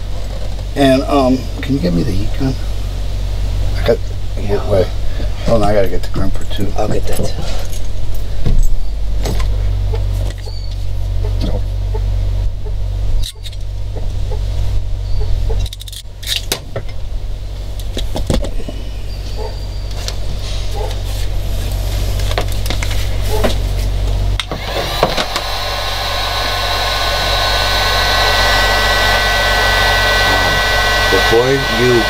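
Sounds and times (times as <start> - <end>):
clicks of wires and tools: 13.2 - 13.7
heat gun blowing with whine: 24.4 - 32.0.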